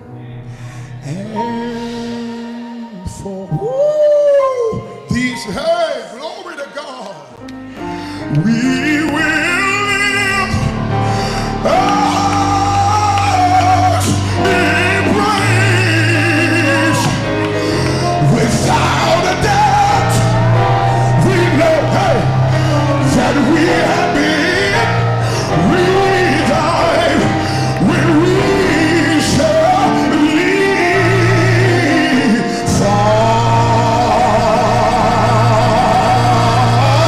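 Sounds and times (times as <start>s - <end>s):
held bass notes: 8.2s - 37.0s
man singing gospel runs: 8.2s - 37.0s.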